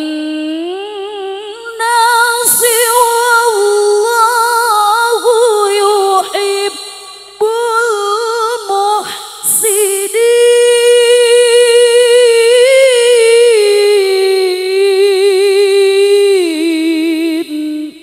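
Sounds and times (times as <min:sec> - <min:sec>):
woman chanting into a microphone: 0:00.0 - 0:18.0.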